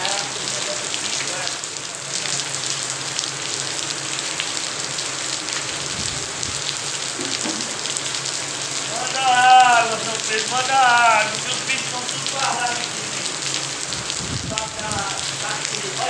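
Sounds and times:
rain on concrete: 0.0s - 16.0s.

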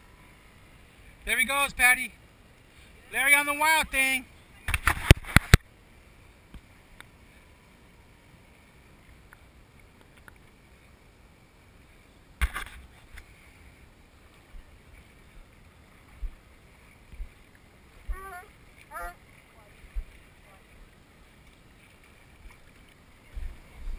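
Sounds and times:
faint steady whine: 0.0s - 23.9s
small waves lapping: 0.0s - 23.9s
water splash: 4.0s - 5.7s.

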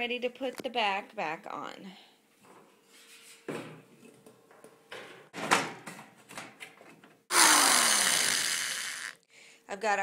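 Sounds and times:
power drill driving a screw: 7.3s - 9.2s.

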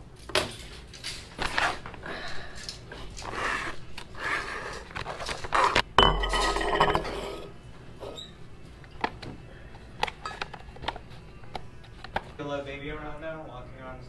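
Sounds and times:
metal bowl clank and ringing: 6.0s - 7.5s.

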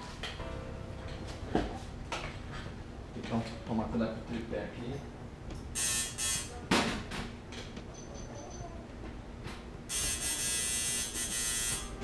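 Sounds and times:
tattoo machine buzzing: 5.8s - 6.5s, 9.9s - 12.0s.

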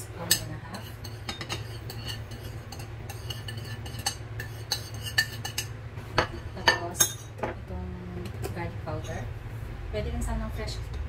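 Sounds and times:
steady low hum: 0.0s - 11.0s
utensils tapping on countertop: 0.2s - 7.6s
ceramic plate clinking on bowl: 0.3s - 7.6s.

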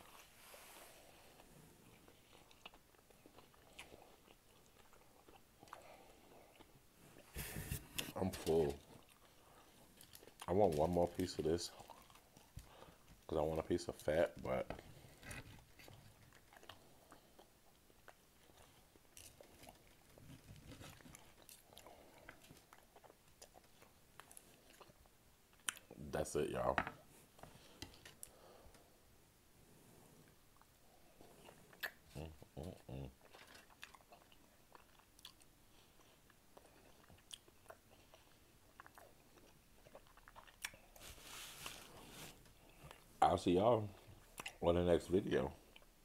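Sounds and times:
soft hiss: 0.0s - 2.2s, 40.8s - 46.0s
chewing steak fat: 1.2s - 7.3s, 7.9s - 26.0s, 30.6s - 43.2s, 43.9s - 44.8s.

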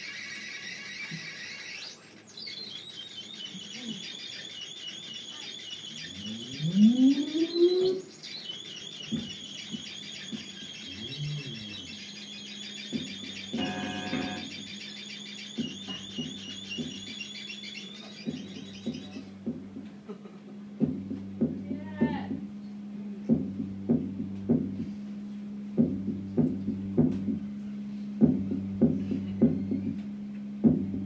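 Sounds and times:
warbling electronic trill: 0.0s - 25.0s
bright chord burst: 9.2s - 30.7s
low drone note: 10.9s - 31.0s.

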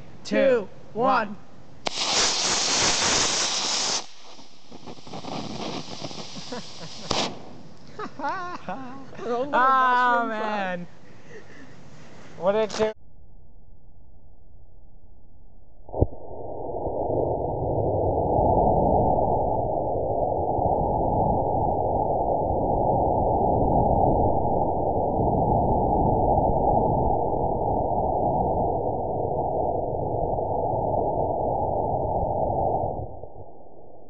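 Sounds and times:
rocket engine ignition crack: 1.8s - 7.8s
rocket exhaust rushing: 1.8s - 7.8s.

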